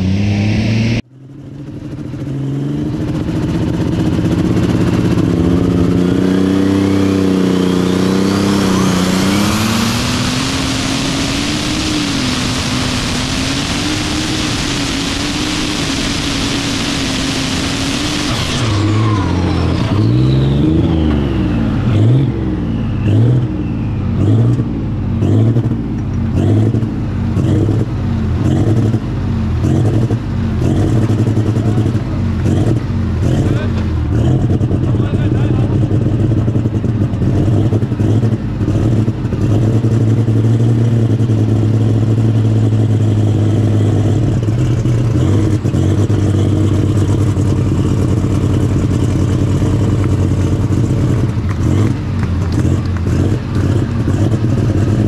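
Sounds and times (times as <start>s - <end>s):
tractor engine at full throttle: 0.0s - 55.0s
turbo whine: 3.0s - 26.0s
engine uneven pulsing idle: 29.1s - 39.5s, 44.2s - 55.0s.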